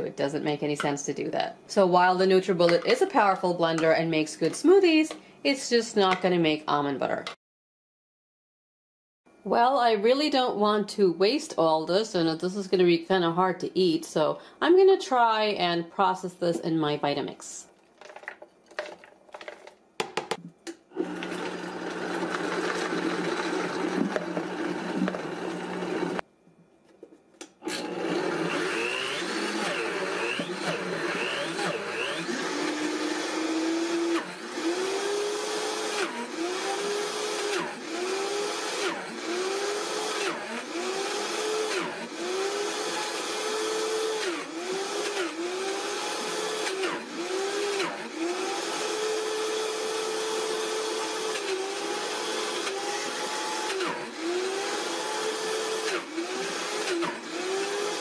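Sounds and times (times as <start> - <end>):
blender motor running: 20.9 - 26.2, 27.6 - 58.0.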